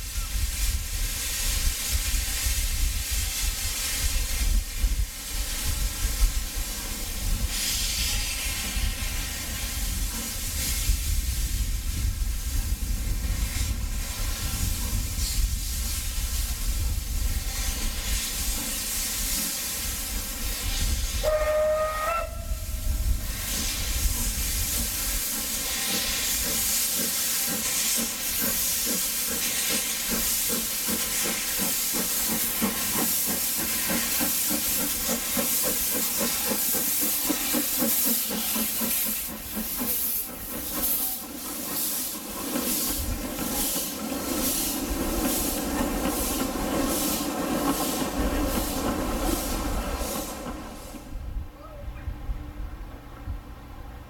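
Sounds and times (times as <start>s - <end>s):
steam engine hissing: 0.0s - 51.5s
steam whistle blast: 21.2s - 22.9s.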